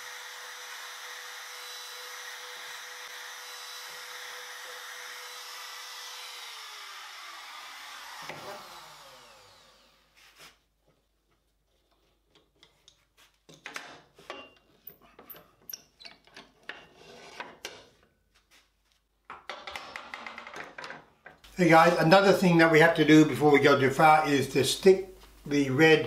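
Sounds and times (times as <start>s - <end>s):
router whine winding down: 0.0s - 10.1s.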